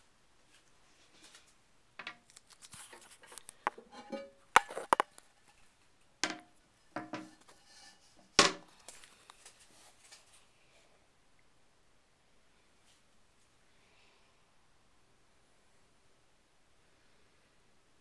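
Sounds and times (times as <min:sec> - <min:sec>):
porcelain lid knocking and clinking: 0:03.8 - 0:05.0.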